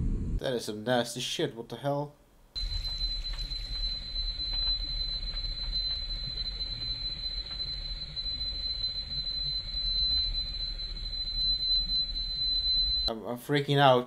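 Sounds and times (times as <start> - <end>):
low rumble: 0.0 - 0.4, 2.6 - 13.1
faint crackling ticks: 2.6 - 13.1
high-pitched whine: 2.6 - 13.1.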